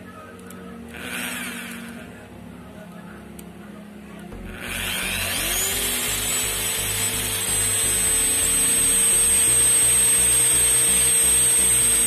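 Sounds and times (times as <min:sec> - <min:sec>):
electric motor whining: 0:00.9 - 0:02.3, 0:04.4 - 0:12.0.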